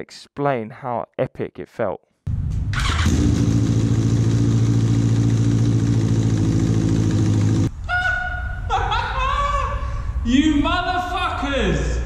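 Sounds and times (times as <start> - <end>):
motorcycle engine idling: 2.8 - 7.7
man shouting excitedly: 9.1 - 12.0.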